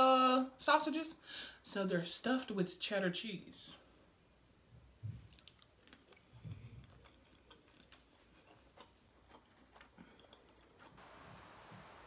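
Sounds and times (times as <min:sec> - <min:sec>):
wet chewing mouth clicks: 0:05.2 - 0:11.0.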